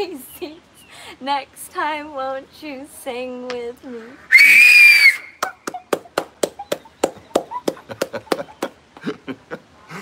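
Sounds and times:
sharp hand claps: 5.4s - 8.7s
faint breathless laughter: 8.3s - 10.0s.

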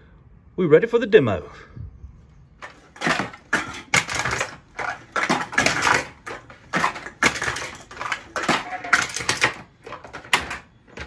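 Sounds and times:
cans being crushed: 2.6s - 11.0s.

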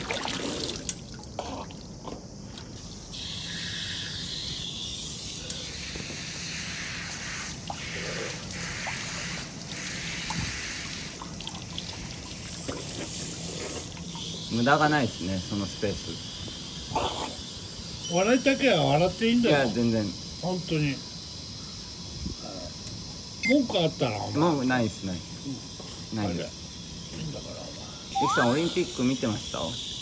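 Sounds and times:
water splashing by hand: 0.0s - 1.9s
garden hose water pouring: 0.0s - 4.3s, 5.1s - 17.6s, 28.1s - 29.8s.

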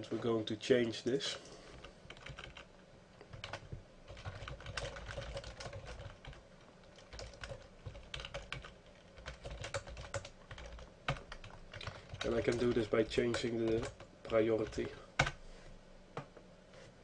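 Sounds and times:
typing on keyboard: 2.1s - 2.7s, 3.3s - 15.4s.

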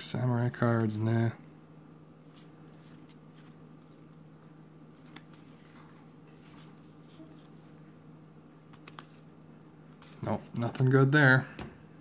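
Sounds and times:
cards sliding against each other: 2.2s - 4.1s, 5.0s - 5.7s, 8.7s - 9.3s.

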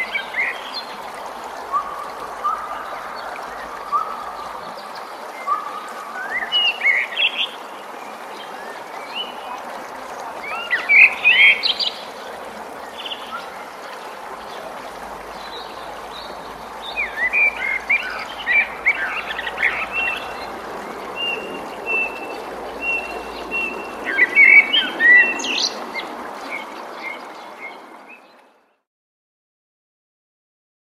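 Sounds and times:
running water: 0.0s - 28.7s
songbirds chirping and singing: 14.4s - 28.3s.

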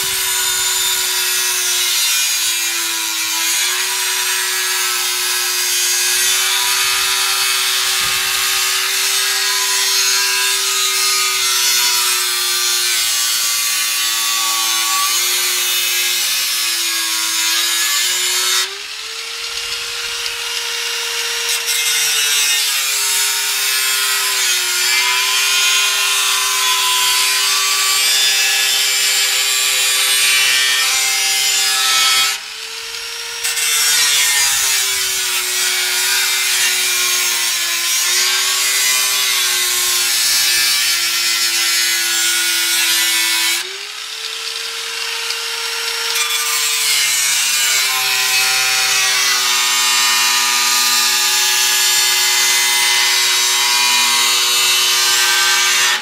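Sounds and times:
angle grinder cutting metal: 0.0s - 56.0s.

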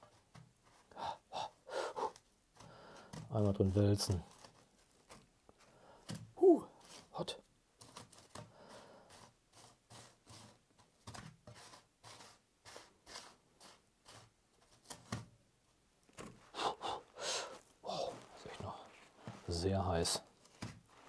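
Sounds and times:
soft scratchy scrapes in metal tray: 6.8s - 15.0s.

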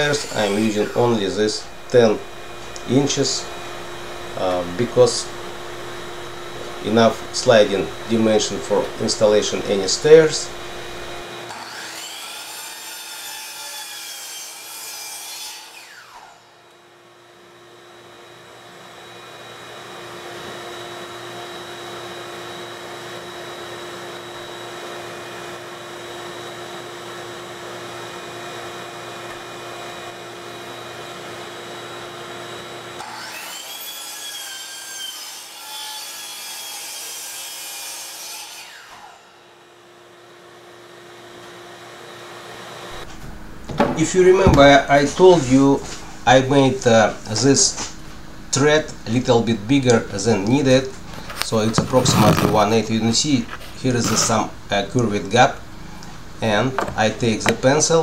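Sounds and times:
steady mechanical whir: 0.0s - 11.5s, 42.9s - 57.8s
miter saw cutting wood: 0.0s - 16.7s, 18.0s - 39.7s, 42.0s - 58.0s.

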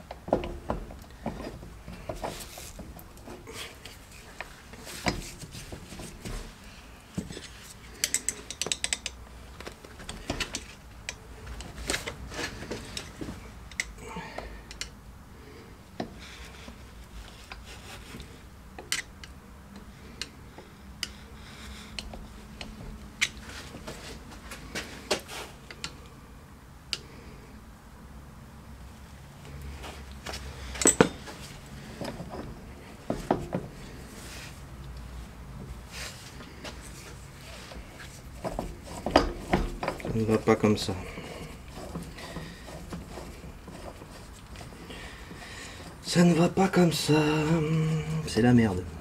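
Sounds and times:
metal tools clinking on metal: 30.7s - 31.3s.

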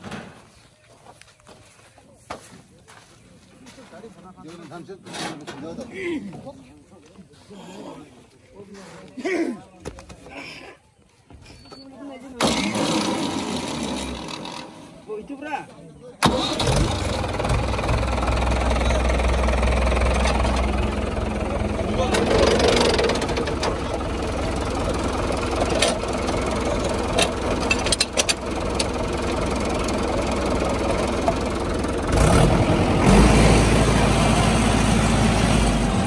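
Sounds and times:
tractor diesel engine idling: 16.2s - 36.0s.

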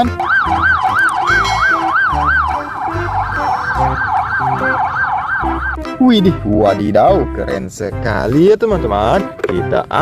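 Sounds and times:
police siren wailing: 0.0s - 6.0s.

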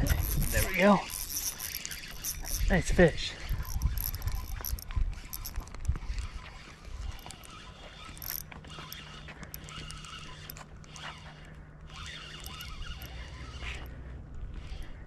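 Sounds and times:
wind rumble on microphone: 0.0s - 0.8s, 2.4s - 7.3s
fishing reel clicking: 0.0s - 15.0s.

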